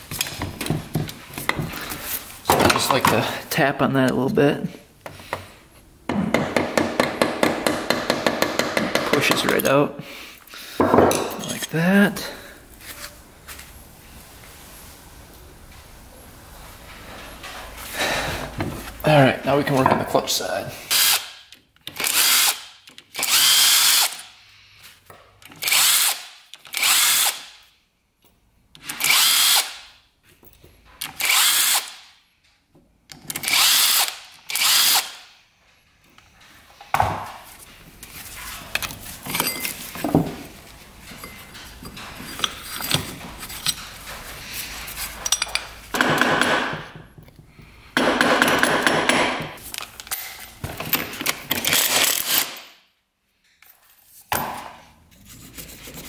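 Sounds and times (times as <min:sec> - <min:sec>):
power drill spinning: 0:21.9 - 0:24.3, 0:25.6 - 0:27.6, 0:28.9 - 0:29.9, 0:31.1 - 0:32.0, 0:33.4 - 0:35.3
metal parts clattering: 0:38.8 - 0:40.2.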